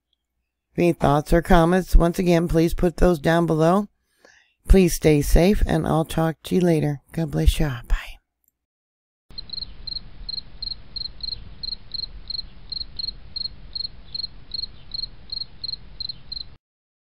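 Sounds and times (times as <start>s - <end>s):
high-pitched cricket-like chirps: 9.3s - 16.6s.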